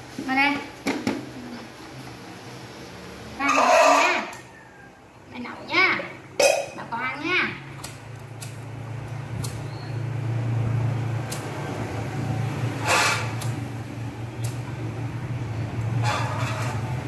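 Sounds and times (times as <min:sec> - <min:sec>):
gas hissing bursts: 0:09.4 - 0:16.9
lighter clicks: 0:11.3 - 0:11.6.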